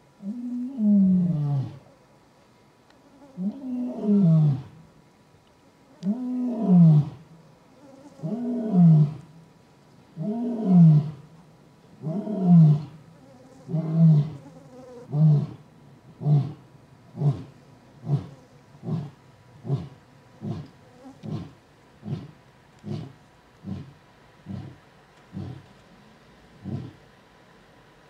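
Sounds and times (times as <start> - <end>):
lion roaring: 3.4 - 4.7, 8.2 - 9.2, 10.2 - 11.2, 12.0 - 13.0, 13.7 - 14.4, 17.2 - 25.7, 26.6 - 27.0
lion grunts: 17.2 - 25.8, 26.6 - 27.0.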